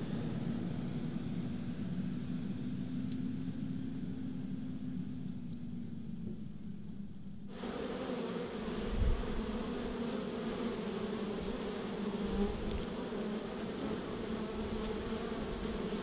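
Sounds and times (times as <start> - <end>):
honey bees buzzing: 7.5 - 16.0.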